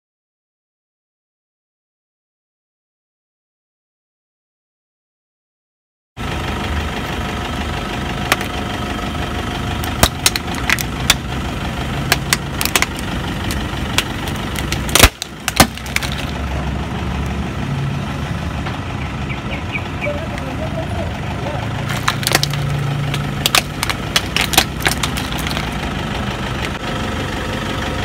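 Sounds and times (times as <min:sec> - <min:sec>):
car engine idling: 0:06.2 - 0:28.0
plastic cracking and snapping: 0:08.3 - 0:08.5, 0:09.8 - 0:11.2, 0:12.1 - 0:16.4, 0:21.9 - 0:25.8.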